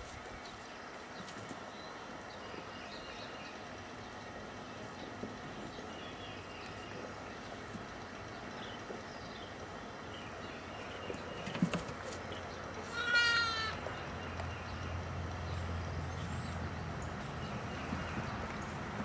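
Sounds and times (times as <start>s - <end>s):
goat kid bleating: 12.8s - 13.8s.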